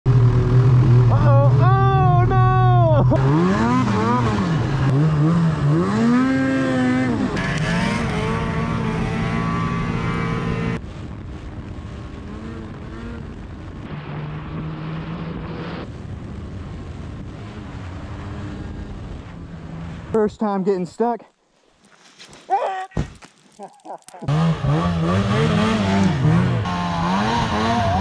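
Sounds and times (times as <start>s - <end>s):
snowmobile engine revving: 0.1s - 10.8s, 11.8s - 16.0s, 24.1s - 28.0s.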